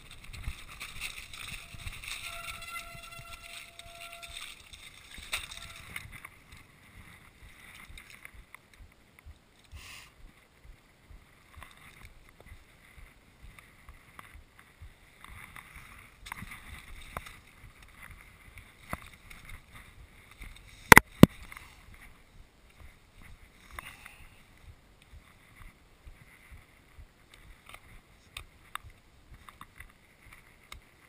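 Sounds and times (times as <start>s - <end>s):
tyres crunching over loose rock: 0.0s - 6.7s.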